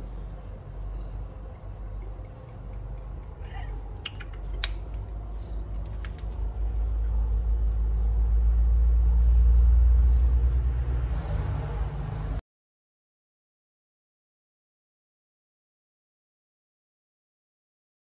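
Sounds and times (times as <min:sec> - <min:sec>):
vehicle engine rumble: 0:00.0 - 0:12.4.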